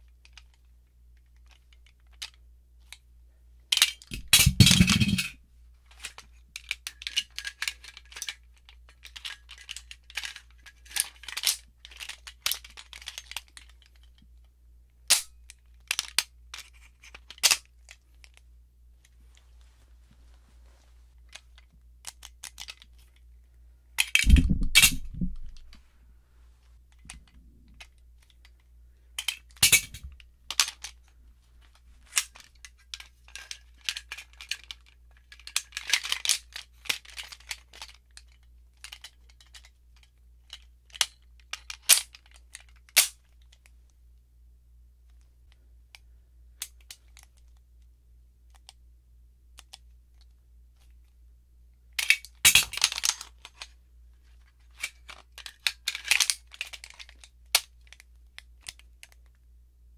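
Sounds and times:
pistol slides rattling: 3.7 - 14.2, 15.0 - 18.4, 24.0 - 25.8, 29.2 - 31.0, 32.0 - 43.7, 52.0 - 53.8, 54.6 - 59.2
pistol metal clicks: 40.9 - 43.2.

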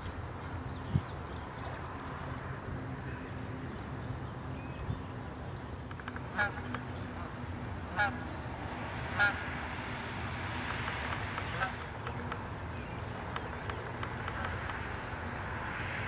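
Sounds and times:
bird calling: 5.8 - 8.4, 9.1 - 9.6, 10.2 - 15.2.

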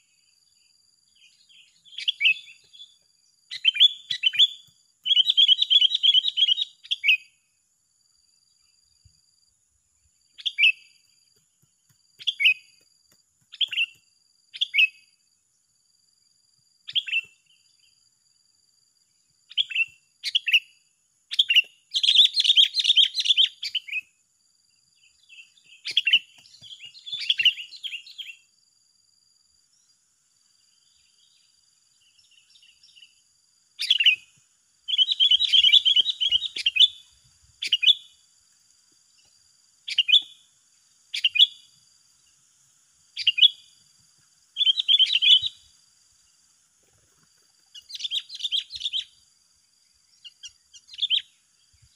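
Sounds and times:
birds chirping and chattering: 25.1 - 28.4, 33.8 - 34.3, 34.9 - 38.1, 44.6 - 45.7, 46.9 - 49.1.

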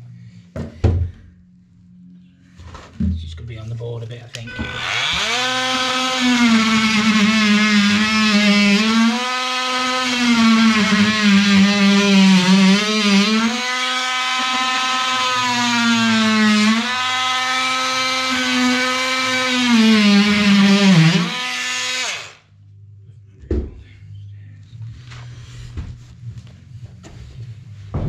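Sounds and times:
electric power tool running: 4.6 - 22.4.

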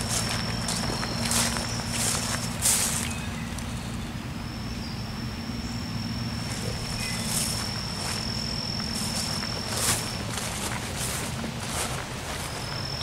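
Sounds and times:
footsteps swishing through grass: 0.0 - 3.4, 6.4 - 13.0
insect high-pitched trill: 0.0 - 13.0
low steady rumble: 0.0 - 13.0.

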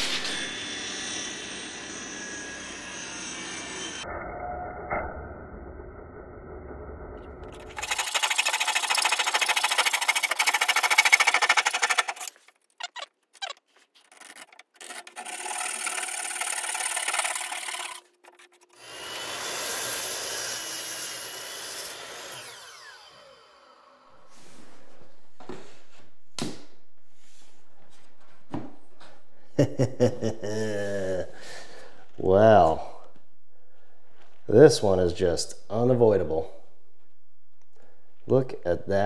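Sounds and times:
power saw cutting wood: 0.0 - 4.0, 7.5 - 24.2
miter saw motor spinning down: 7.4 - 24.2.

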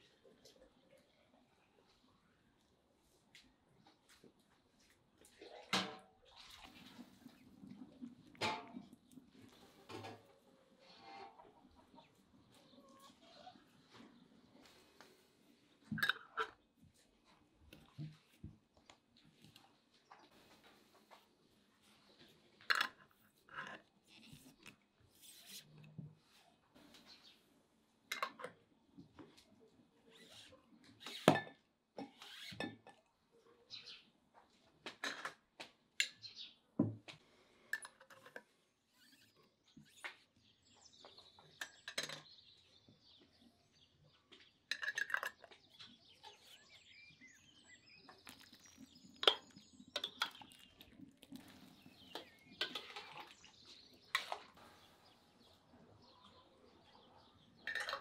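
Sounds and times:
faint bird chirps: 45.4 - 57.6
pots and dishes clinking: 52.1 - 53.4.

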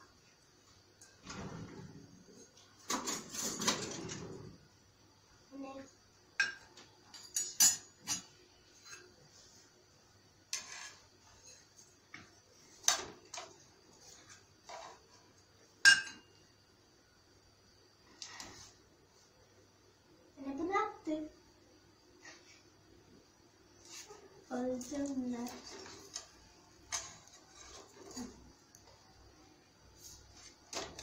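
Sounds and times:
utensil scraping in frying pan: 10.5 - 11.8, 25.5 - 28.4.

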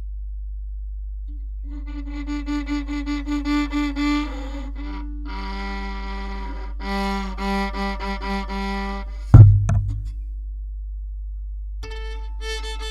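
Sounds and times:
violin bowed notes: 1.6 - 10.1, 11.8 - 12.9.

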